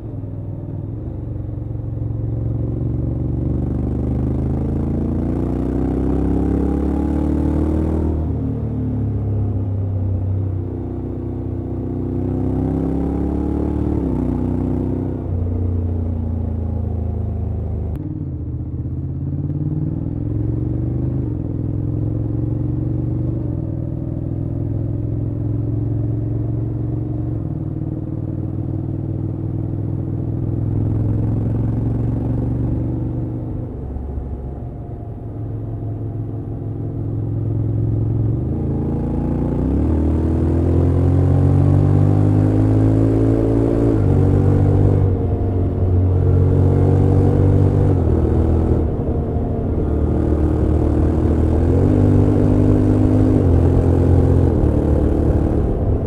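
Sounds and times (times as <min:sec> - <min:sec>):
motorcycle engine revving: 0:01.9 - 0:08.6, 0:19.0 - 0:56.0.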